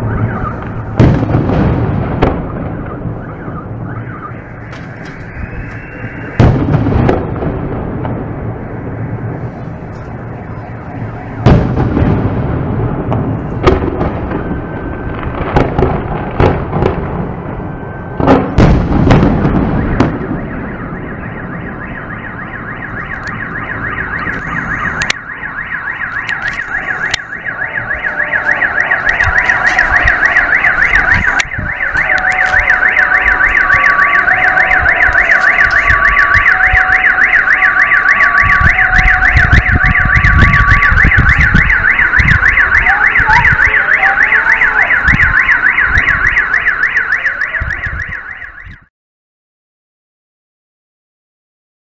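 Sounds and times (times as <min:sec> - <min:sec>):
car alarm warbling: 0:00.0 - 0:07.3, 0:09.0 - 0:11.5, 0:19.4 - 0:48.9
fireworks booming and crackling: 0:00.0 - 0:48.1.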